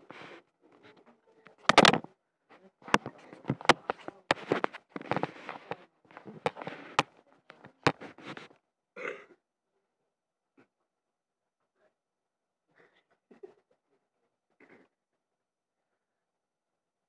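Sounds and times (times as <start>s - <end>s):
tablet handling knocks and clicks: 1.5s - 2.1s, 2.9s - 8.4s.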